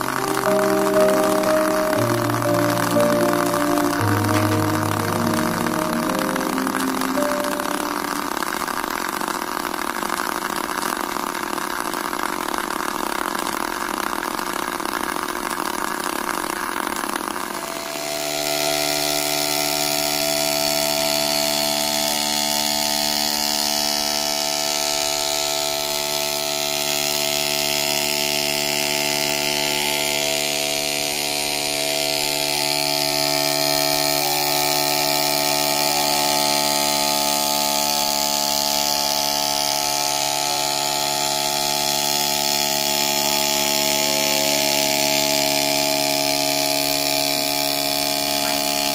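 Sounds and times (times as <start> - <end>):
pitched motor hum: 0.0 - 48.9
small motor buzzing: 7.2 - 48.9.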